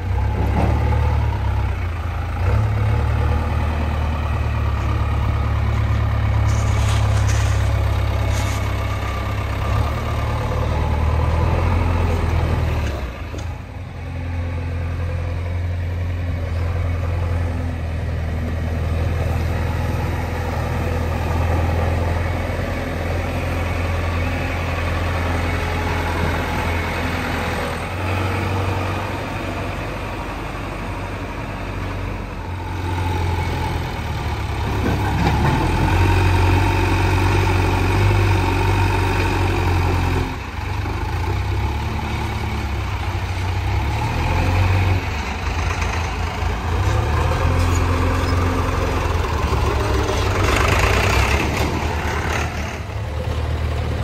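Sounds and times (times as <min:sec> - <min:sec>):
heavy machinery diesel engine idling: 0:45.0 - 0:54.0.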